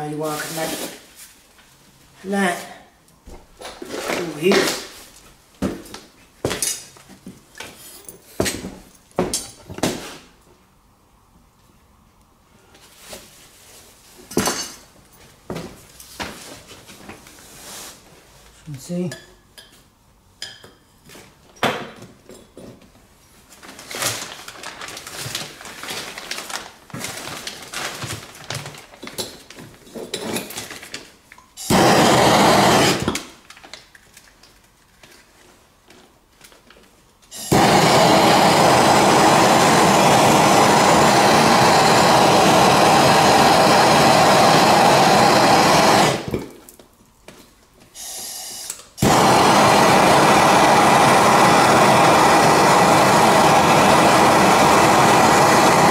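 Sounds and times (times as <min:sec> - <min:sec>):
gas torch flame rushing: 0:31.6 - 0:33.2, 0:37.3 - 0:46.4, 0:48.0 - 0:55.9.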